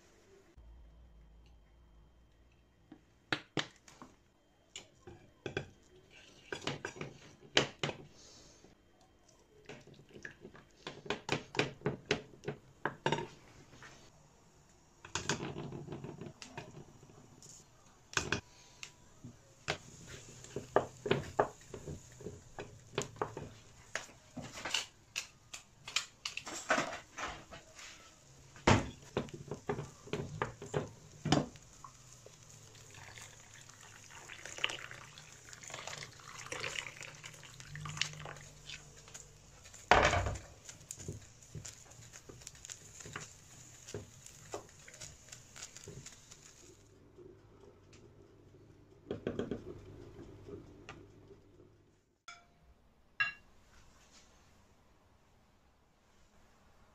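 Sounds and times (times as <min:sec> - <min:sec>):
wooden spoon stirring in metal pot: 0:05.0 - 0:08.4, 0:19.6 - 0:24.9, 0:26.8 - 0:46.8
water pouring and sloshing: 0:31.8 - 0:39.9.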